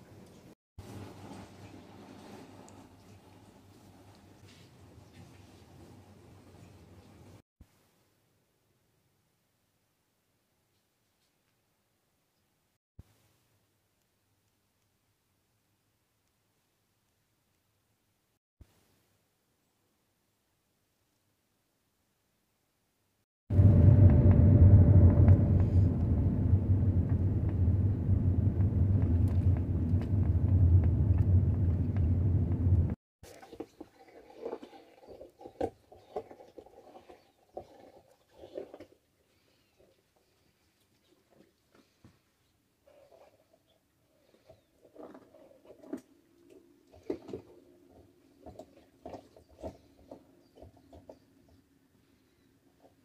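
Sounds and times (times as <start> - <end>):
car engine and road rumble: 23.5 - 33.0
low steady hum: 23.5 - 33.0.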